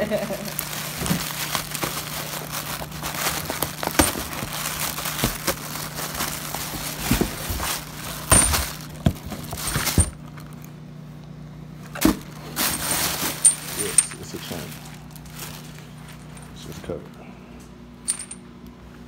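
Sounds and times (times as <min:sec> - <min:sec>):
plastic packing rustling: 0:00.1 - 0:10.7, 0:12.0 - 0:16.7
sharp clinks and knocks: 0:18.0 - 0:18.4.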